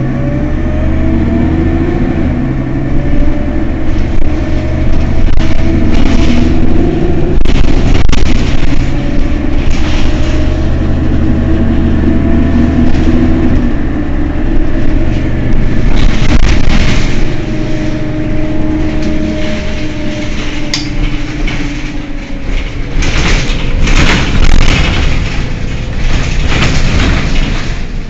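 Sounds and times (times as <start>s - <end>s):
bus engine idling: 0.0s - 28.0s.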